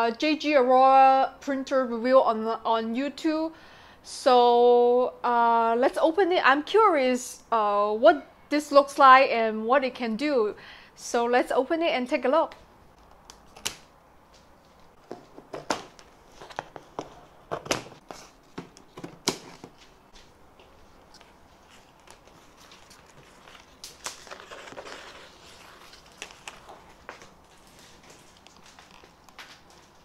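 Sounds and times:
scraping and rustling: 14.6 - 30.0.

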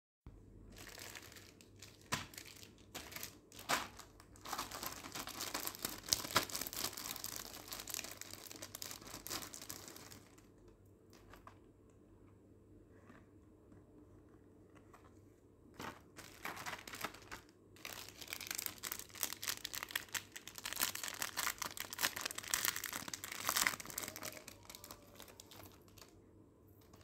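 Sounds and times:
plastic packet crinkling: 0.7 - 11.6, 15.8 - 26.2.

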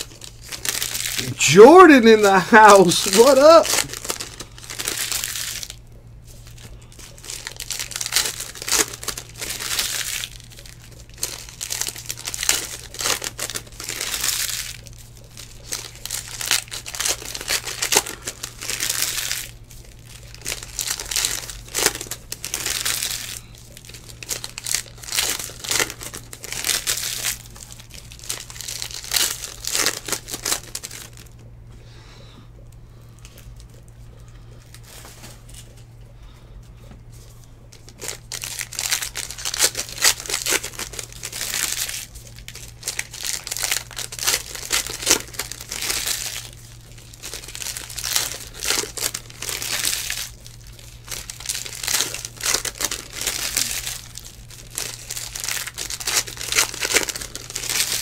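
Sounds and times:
cards rustling: 0.0 - 5.8, 51.1 - 58.0
foil wrappers crinkling and tearing: 0.0 - 31.4, 33.1 - 35.9, 37.1 - 58.0.

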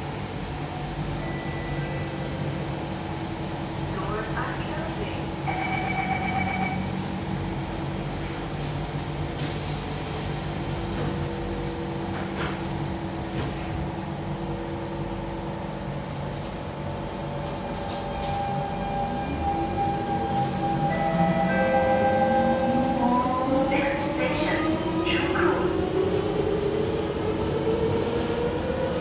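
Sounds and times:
train motor whine: 17.0 - 29.0.

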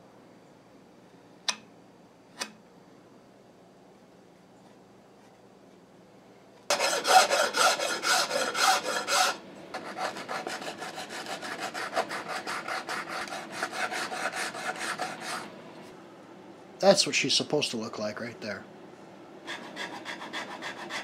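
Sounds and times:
sanding block strokes: 6.7 - 15.5, 19.5 - 21.0.

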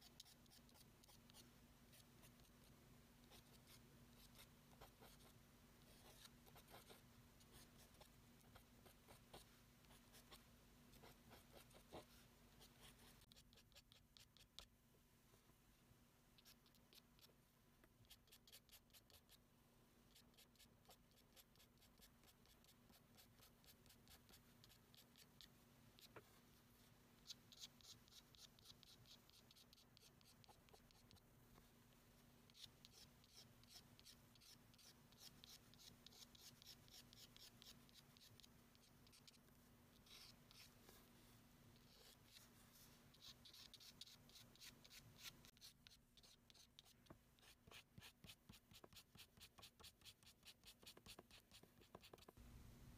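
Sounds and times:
felt-tip pen scratching on paper: 27.2 - 31.2, 40.0 - 40.7, 43.1 - 52.4.

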